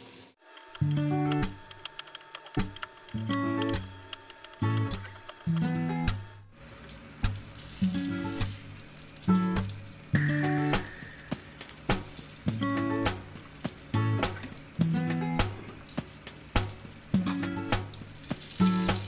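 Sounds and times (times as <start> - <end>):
hot oil sizzling in a frying pan: 0.0 - 0.4, 6.6 - 15.0, 15.6 - 19.0
plucked acoustic guitar music: 0.8 - 1.6, 2.6 - 3.9, 4.6 - 6.3, 7.2 - 19.0
spatula turning patty: 10.7 - 19.0.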